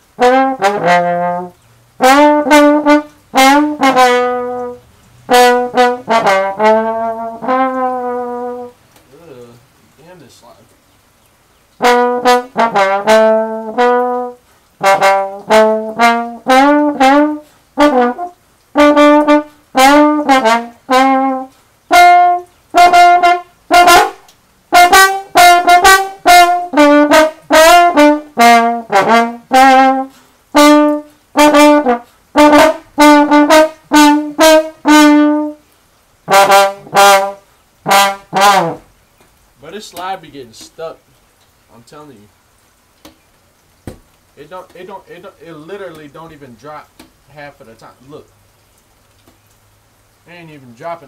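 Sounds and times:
slide trombone melody: 0.0 - 8.8, 11.7 - 39.0.

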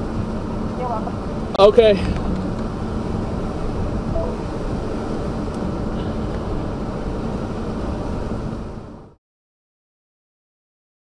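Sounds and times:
car cabin rumble: 0.0 - 9.1
faint vehicle hum: 0.0 - 9.2.

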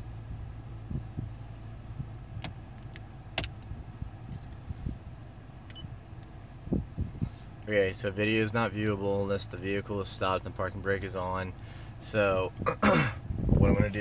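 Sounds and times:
vehicle idling: 0.0 - 14.0.

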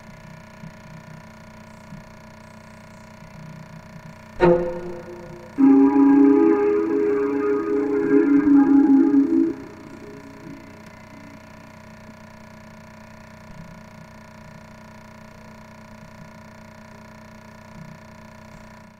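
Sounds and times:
spooky music: 4.4 - 11.5.

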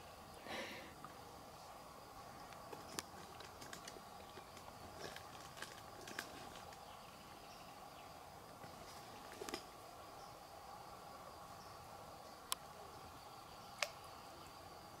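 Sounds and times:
faint insect chirring: 0.0 - 15.0
sharp clicks: 13.8 - 14.0.

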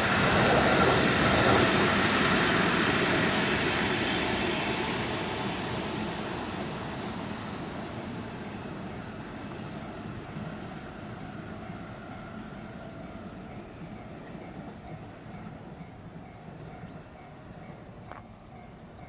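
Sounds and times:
electric train rumbling past: 0.0 - 19.0.

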